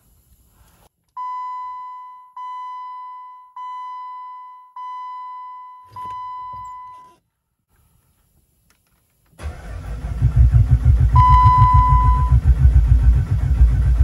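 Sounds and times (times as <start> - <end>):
electronic warning chime: 11.2 - 12.4.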